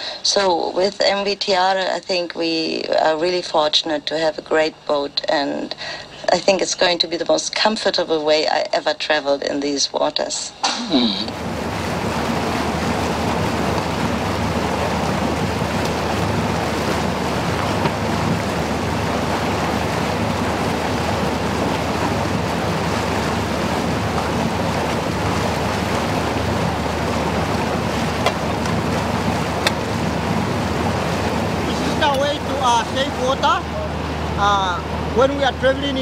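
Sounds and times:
boat engine drone: 10.8s - 36.0s
bow wave rushing along hull: 11.2s - 36.0s.

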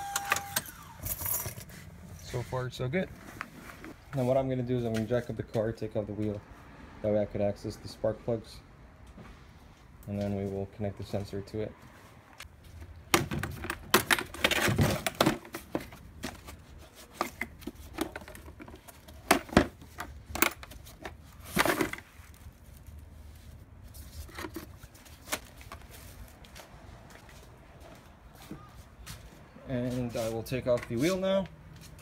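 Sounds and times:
tools clattering in plastic case: 13.1s - 22.1s.

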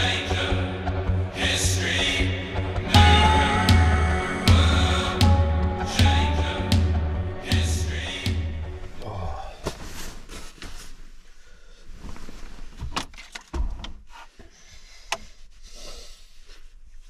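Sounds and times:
rubbing and rustling: 9.6s - 13.1s, 14.0s - 17.0s.

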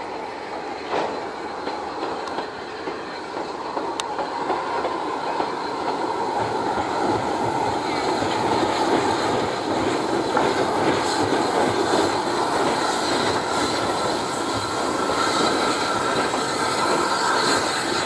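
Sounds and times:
steam train rumbling past: 0.0s - 18.0s
high wheel squeal: 5.1s - 18.0s.

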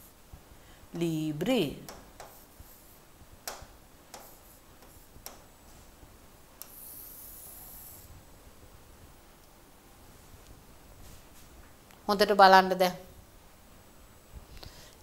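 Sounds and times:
stylus tapping on tablet: 1.8s - 2.5s, 3.4s - 5.5s
stylus scratchy stroke: 6.6s - 8.2s.

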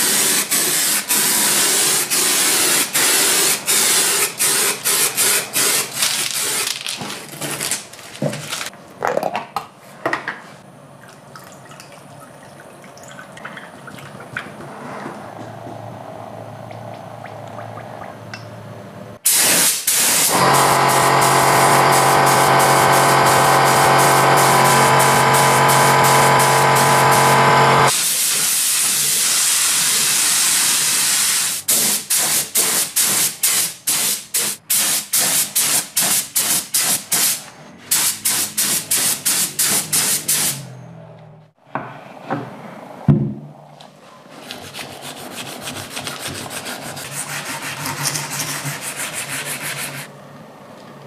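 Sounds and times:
aerosol spray paint hissing: 19.3s - 35.4s.

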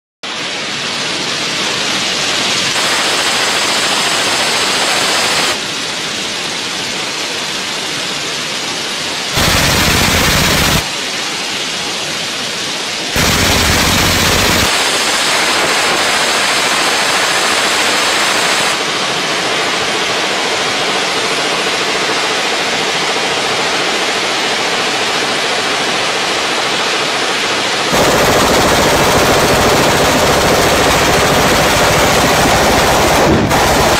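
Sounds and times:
suppressed machine gun fire: 2.7s - 5.6s, 9.3s - 10.9s, 13.2s - 18.8s, 27.9s - 33.9s.

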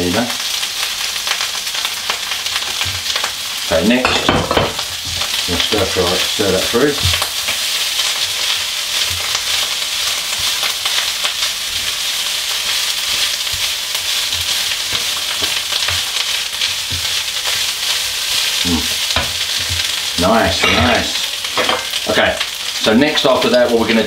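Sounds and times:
rice sizzling in wok: 0.0s - 24.0s
wooden spoon knocking and scraping: 19.1s - 20.0s.

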